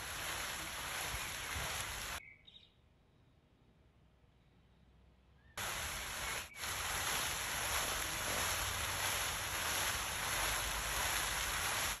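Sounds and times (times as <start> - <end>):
fountain jets splashing into pool: 0.0 - 2.2, 5.6 - 12.0.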